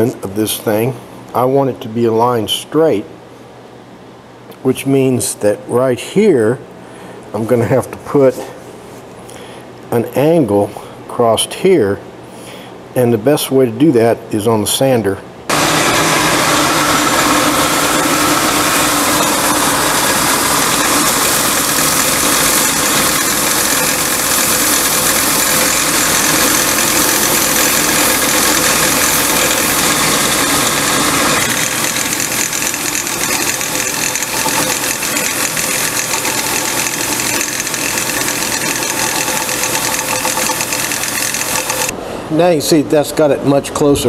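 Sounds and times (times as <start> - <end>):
belt sander grinding wood: 15.5 - 41.9.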